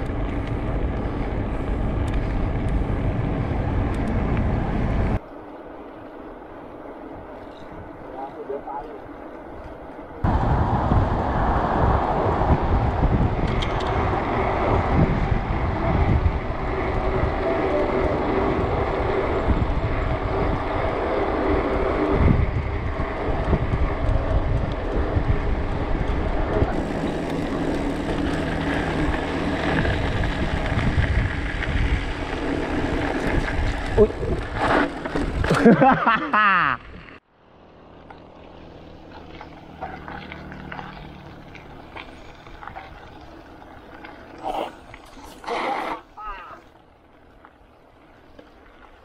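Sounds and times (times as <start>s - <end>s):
wind buffeting microphone: 0.0s - 5.2s, 6.6s - 35.7s.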